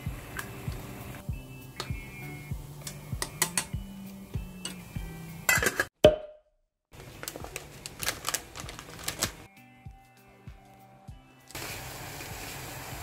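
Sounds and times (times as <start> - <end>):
plastic wrapper crinkling: 7.0 - 9.5.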